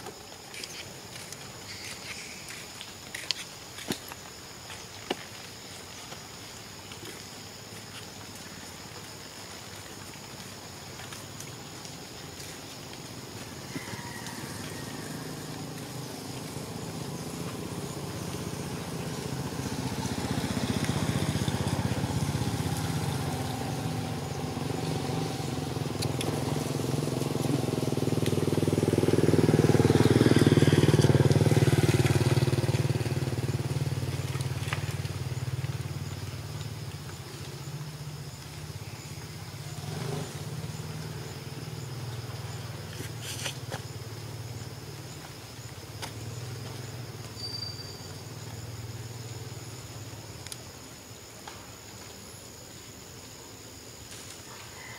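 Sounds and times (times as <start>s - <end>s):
vehicle engine droning: 13.4s - 47.3s
faint clicks: 50.4s - 50.6s.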